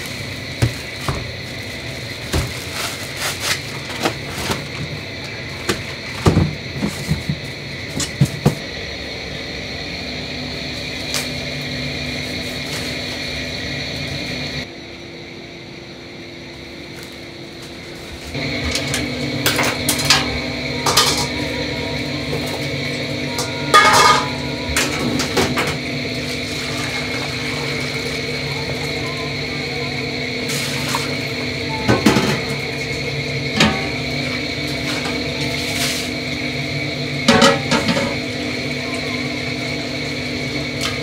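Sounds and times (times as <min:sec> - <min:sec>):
pots and utensils clanking: 0:00.0 - 0:08.7, 0:18.4 - 0:29.5, 0:30.4 - 0:36.6, 0:37.2 - 0:39.8
steady kitchen hum: 0:00.0 - 0:41.0.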